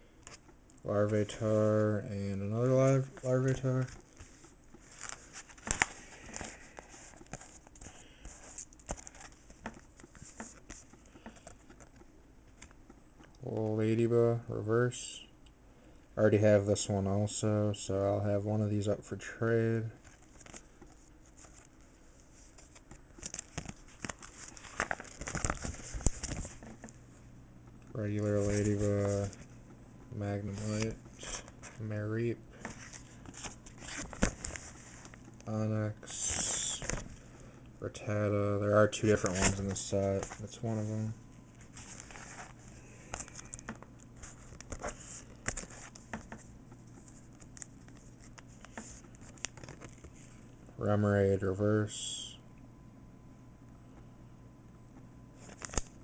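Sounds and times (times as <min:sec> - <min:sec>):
plastic card sleeves crinkling: 0:02.4 - 0:12.8, 0:19.9 - 0:27.2, 0:27.9 - 0:29.6, 0:30.2 - 0:35.4, 0:36.0 - 0:50.6, 0:55.4 - 0:56.0.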